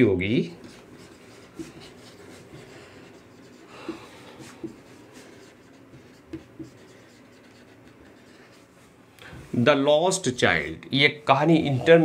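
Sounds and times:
marker writing on whiteboard: 0:00.3 - 0:08.9.

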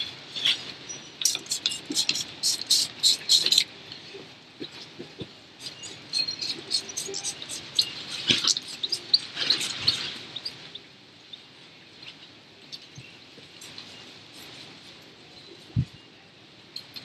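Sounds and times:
spray bottle squirting: 0:01.4 - 0:03.6.

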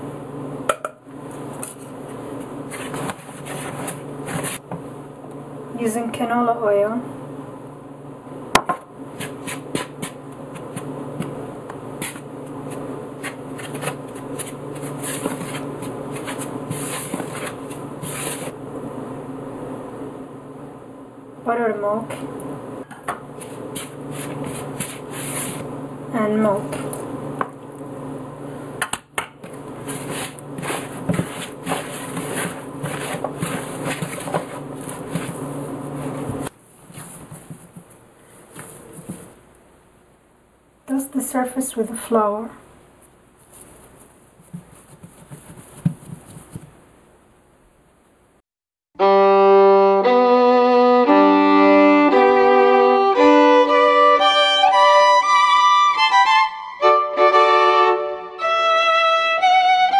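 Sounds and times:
steady low hum: 0:00.0 - 0:28.8
hands mixing dough in plastic bowl: 0:01.4 - 0:04.7, 0:12.0 - 0:18.6, 0:23.3 - 0:25.7, 0:29.4 - 0:39.4, 0:43.4 - 0:46.8
violin playing: 0:49.0 - 0:59.9.

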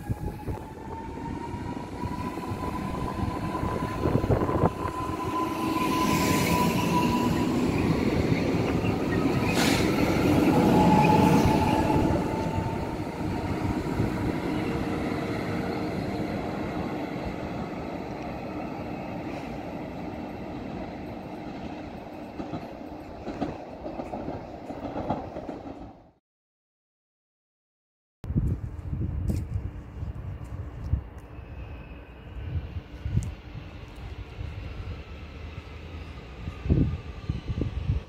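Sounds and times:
high train whine: 0:00.0 - 0:26.2, 0:28.3 - 0:38.0
train wheels rumbling on rails: 0:00.0 - 0:26.2.

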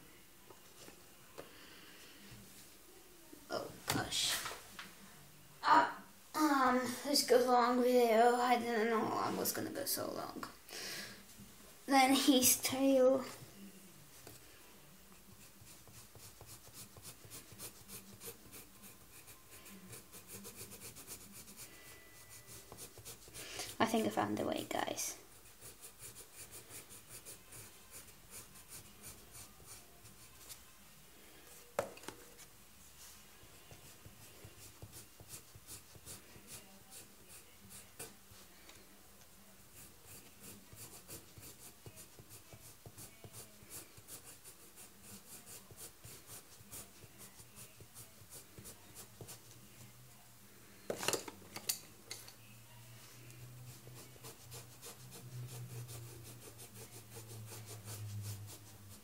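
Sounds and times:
pencil scratching on paper: 0:15.2 - 0:24.2, 0:25.1 - 0:30.6, 0:33.6 - 0:38.4, 0:39.7 - 0:49.6, 0:53.6 - 0:59.0.

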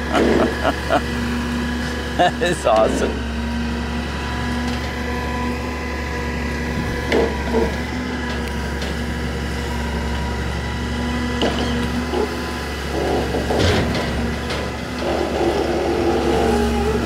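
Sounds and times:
truck engine humming: 0:00.0 - 0:17.0.

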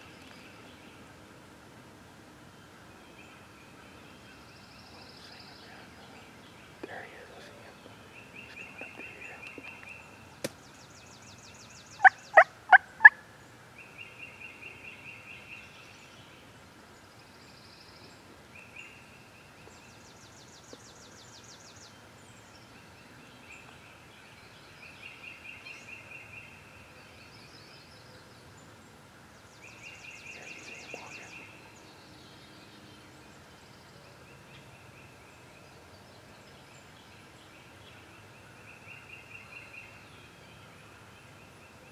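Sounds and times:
songbirds trilling: 0:02.6 - 0:41.9
wild turkey yelps: 0:12.0 - 0:13.2.

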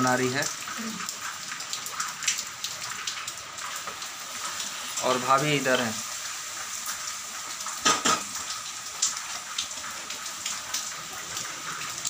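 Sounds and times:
metal dishes and utensils clinking: 0:07.8 - 0:08.3.

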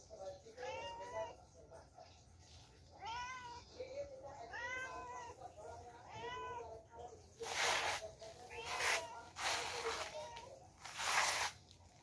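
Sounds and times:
cat meowing: 0:00.6 - 0:01.4, 0:03.0 - 0:03.8, 0:04.4 - 0:06.8, 0:08.4 - 0:10.6.

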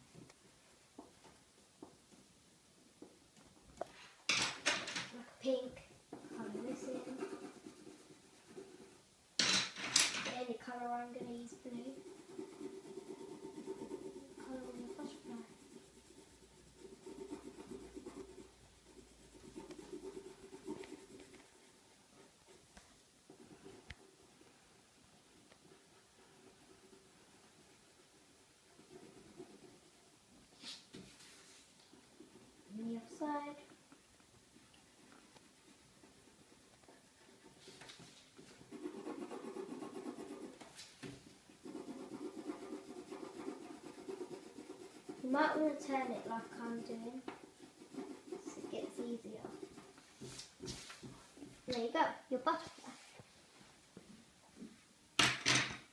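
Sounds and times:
pencil scribbling on paper: 0:06.1 - 0:09.1, 0:10.8 - 0:22.7, 0:25.2 - 0:33.6, 0:34.5 - 0:51.5.

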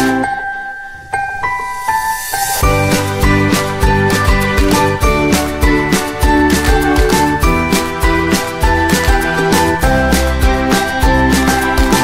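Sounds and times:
background music with drum beat: 0:02.6 - 0:12.0.

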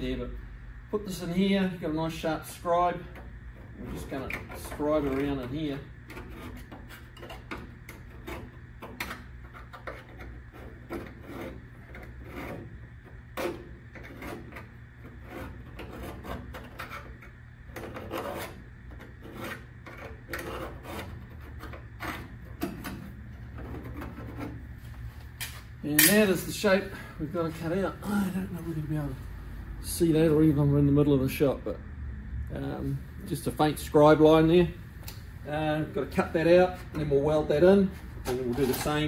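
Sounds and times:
steady low hum: 0:00.0 - 0:39.0
steel scribe scratching sheet metal: 0:03.7 - 0:24.6.

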